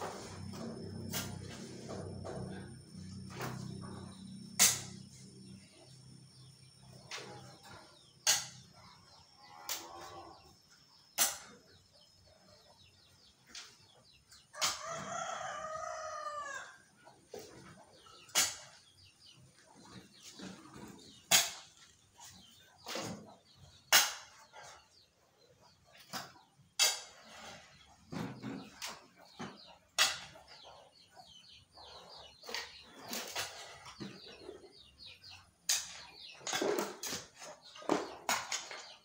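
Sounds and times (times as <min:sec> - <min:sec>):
rooster crowing: 0:14.5 - 0:16.8.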